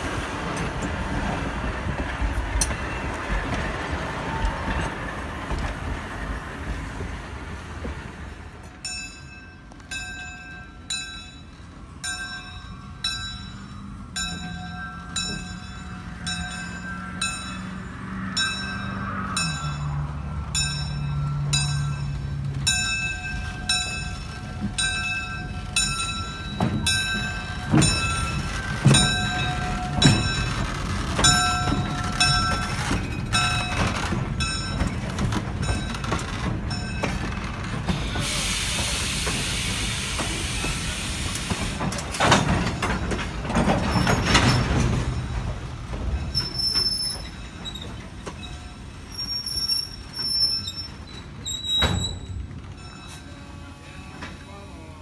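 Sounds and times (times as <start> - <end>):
train wheels thudding over rail joints: 0.0 - 17.8, 20.5 - 53.2
air hissing: 37.9 - 42.0.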